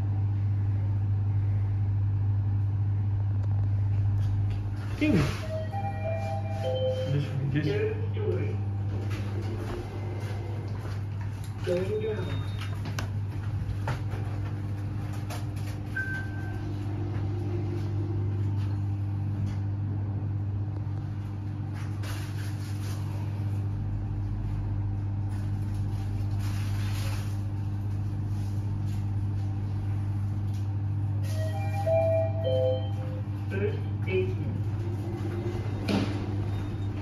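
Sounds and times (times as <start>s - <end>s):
elevator car humming: 3.4s - 26.0s, 29.3s - 37.0s
short beep: 5.2s - 7.4s, 31.2s - 33.2s.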